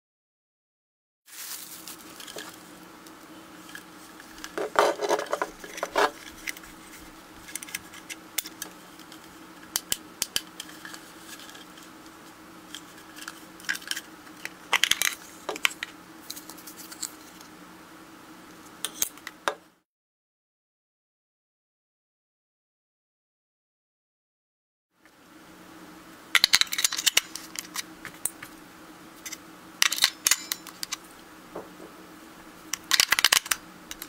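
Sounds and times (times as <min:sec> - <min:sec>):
faint steady hum: 0:01.3 - 0:19.8, 0:25.0 - 0:34.0.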